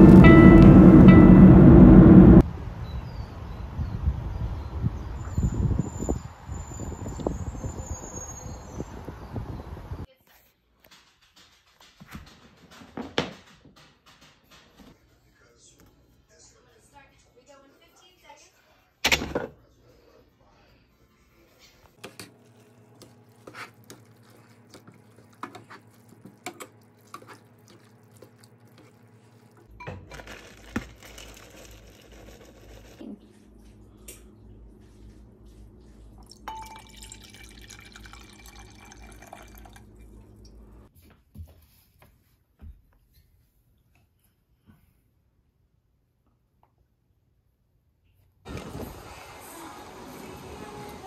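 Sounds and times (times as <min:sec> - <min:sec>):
steady hum: 0:00.0 - 0:02.4
kitchen clatter: 0:10.8 - 0:15.0.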